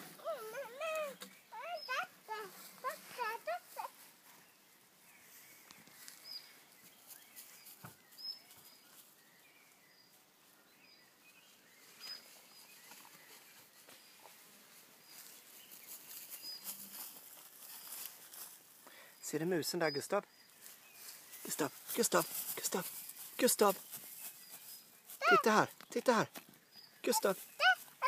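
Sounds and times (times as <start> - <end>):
faint rustling in grass: 0.0 - 28.0.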